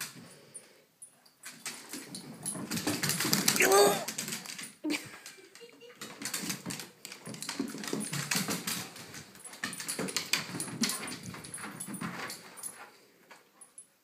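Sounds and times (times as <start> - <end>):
dog claws clicking on wooden floor: 1.4 - 13.4
dog whining: 3.6 - 4.1.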